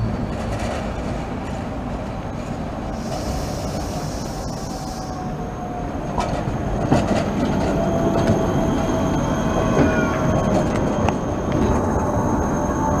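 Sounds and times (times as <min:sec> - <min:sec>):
tram whining past: 0:00.0 - 0:13.0
tram wheels clicking over rails: 0:00.1 - 0:05.2, 0:06.0 - 0:13.0
wheels squealing on curve: 0:07.7 - 0:13.0.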